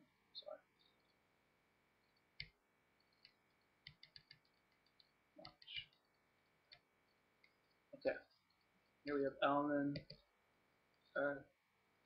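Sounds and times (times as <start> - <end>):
computer mouse clicking: 2.0 - 7.8, 9.9 - 10.3.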